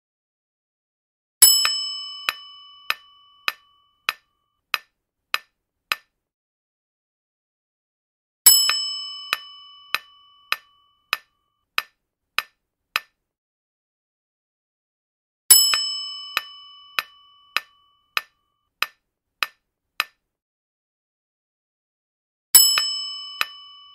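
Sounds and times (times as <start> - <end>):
bright bell ding: 1.4 - 4.3, 8.5 - 11.4, 15.5 - 18.4.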